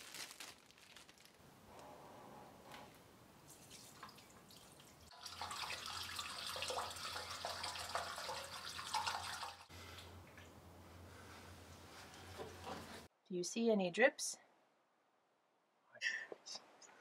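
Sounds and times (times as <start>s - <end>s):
water pouring into a pipe: 3.6s - 9.7s.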